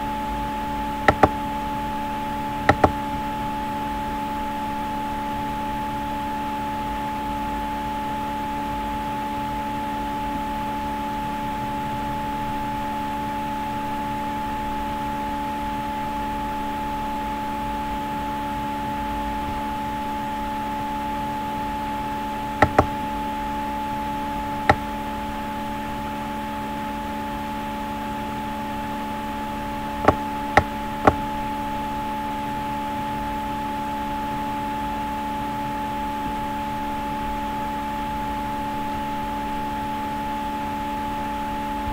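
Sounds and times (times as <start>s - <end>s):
steady hum of constant tones: 0.0s - 41.9s
computer mouse clicks: 1.0s - 1.4s, 2.6s - 3.0s, 22.6s - 23.0s.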